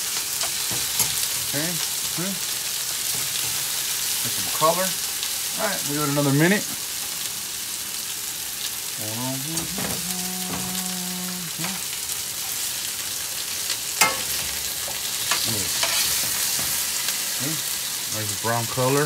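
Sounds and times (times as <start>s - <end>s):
chicken sizzling in hot oil: 0.0s - 19.0s
metal spoon scraping a pan: 14.0s - 17.2s.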